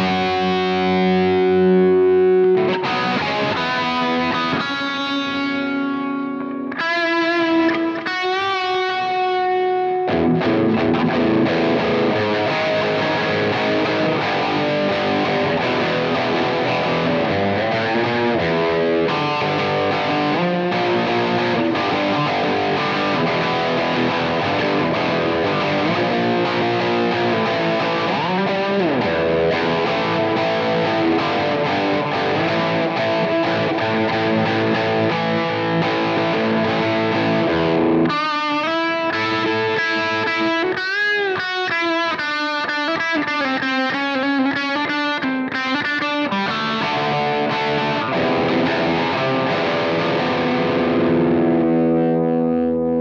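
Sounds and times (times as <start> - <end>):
distorted electric guitar: 0.0 - 53.0.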